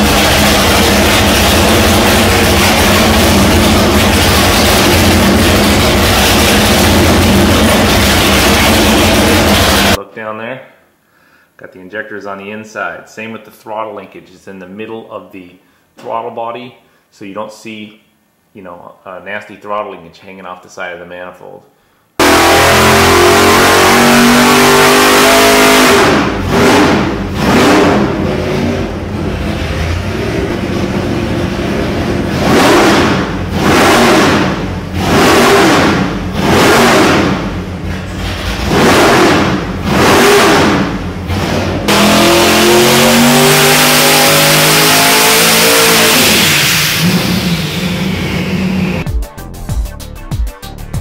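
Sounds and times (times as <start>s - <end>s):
engine revving on dynamometer: 0.0s - 10.0s, 22.2s - 49.0s.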